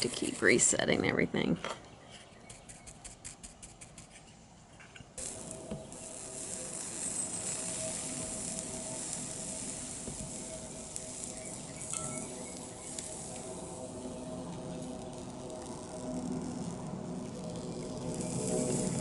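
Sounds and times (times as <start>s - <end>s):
small crackles: 2.0s - 19.0s
soldering iron sizzling: 5.2s - 19.0s.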